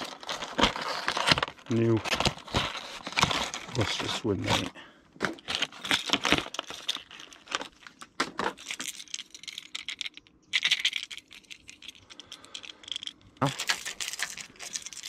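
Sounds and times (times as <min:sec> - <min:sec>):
metallic clicks and jingles: 0:08.5 - 0:15.0.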